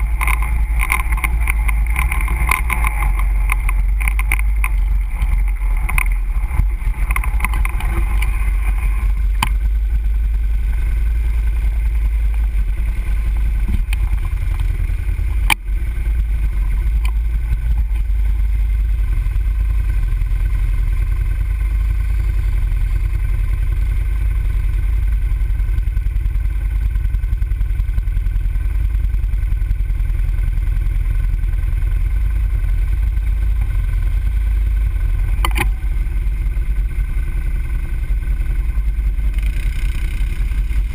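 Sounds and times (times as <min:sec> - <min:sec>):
atv engine idling: 0:00.0 - 0:40.9
sharp click: 0:35.4 - 0:35.8.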